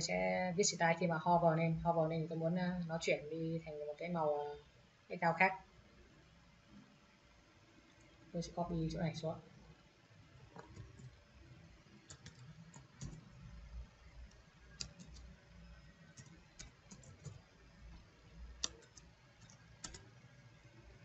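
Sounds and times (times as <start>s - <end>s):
computer keyboard keystrokes: 12.1s - 13.2s, 14.7s - 15.3s, 16.1s - 17.4s, 18.6s - 20.1s.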